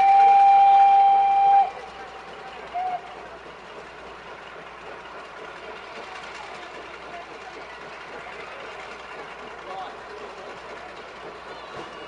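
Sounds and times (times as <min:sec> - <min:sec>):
diesel locomotive idling: 0:00.0 - 0:12.0
people talking: 0:05.8 - 0:12.0.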